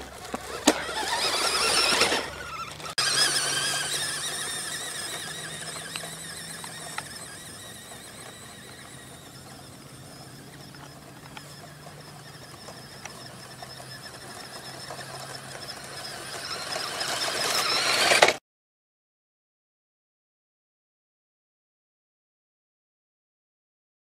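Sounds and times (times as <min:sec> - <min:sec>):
rc truck motor whining: 0:00.0 - 0:18.4.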